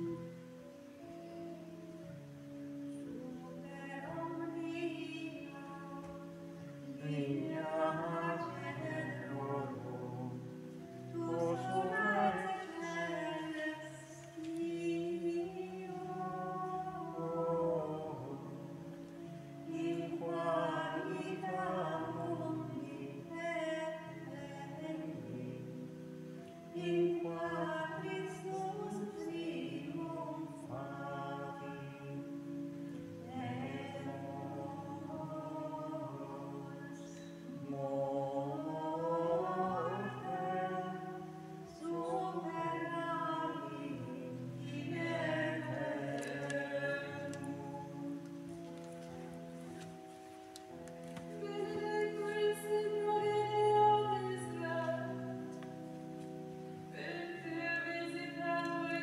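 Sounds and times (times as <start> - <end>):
choir singing a slow chant: 7.0 - 10.4, 11.1 - 14.0, 33.3 - 41.2.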